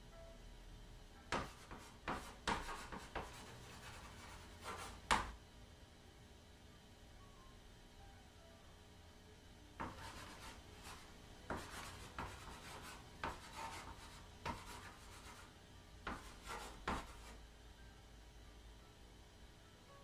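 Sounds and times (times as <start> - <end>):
chalk scratching strokes: 1.3 - 5.1, 9.8 - 15.5, 16.1 - 17.4
chalk tapping on chalkboard: 1.3 - 5.4, 9.8 - 17.4.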